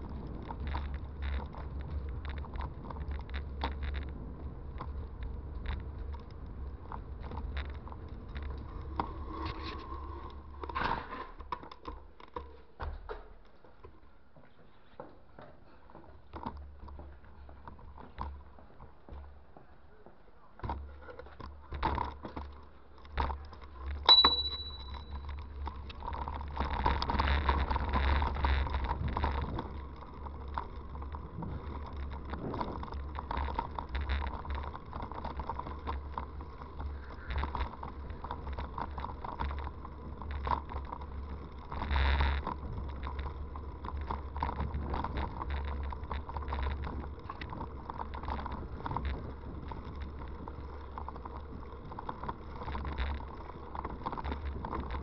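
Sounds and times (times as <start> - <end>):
bicycle rumble and rattle: 0.0 - 55.0
bicycle bell ring: 24.1 - 25.3.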